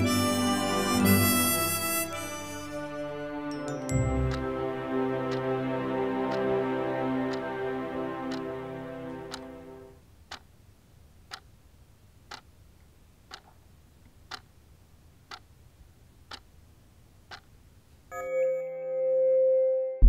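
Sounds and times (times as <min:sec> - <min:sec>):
clock ticking: 0:03.8 - 0:10.6, 0:11.2 - 0:11.6, 0:12.2 - 0:14.6, 0:15.2 - 0:15.6, 0:16.2 - 0:17.6.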